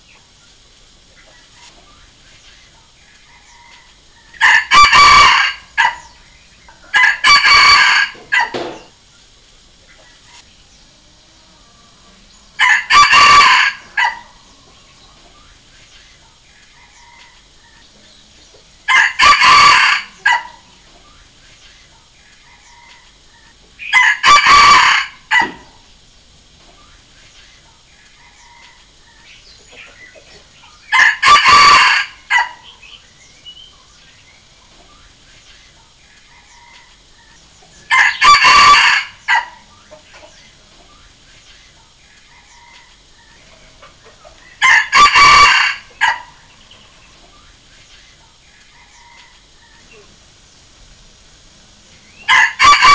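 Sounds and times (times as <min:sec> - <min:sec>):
rooster crowing: 0:03.2 - 0:06.2, 0:06.9 - 0:08.9, 0:11.6 - 0:14.7, 0:16.8 - 0:17.6, 0:18.9 - 0:20.8, 0:23.8 - 0:25.8, 0:28.2 - 0:29.3, 0:30.8 - 0:33.0, 0:37.9 - 0:39.7, 0:44.6 - 0:46.6, 0:48.7 - 0:49.9, 0:52.1 - 0:52.9.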